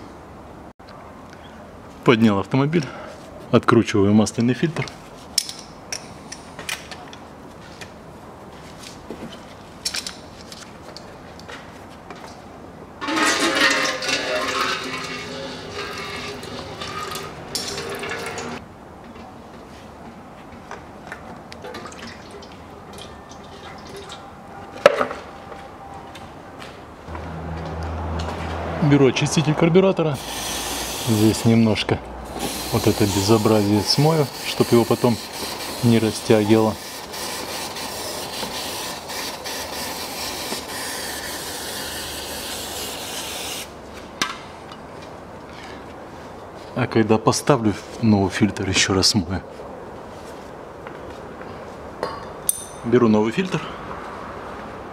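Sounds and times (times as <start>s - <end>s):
aerosol can spraying: 30.2s - 31.5s, 32.3s - 43.7s.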